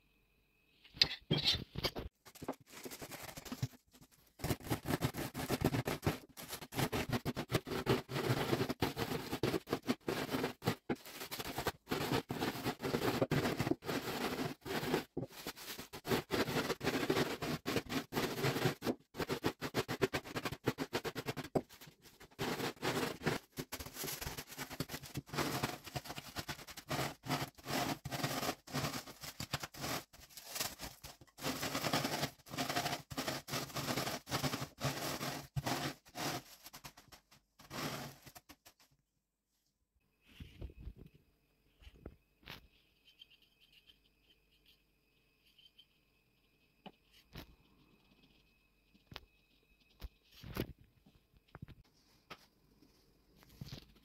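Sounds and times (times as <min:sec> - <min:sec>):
plastic bag crinkling: 0:02.2 - 0:38.8.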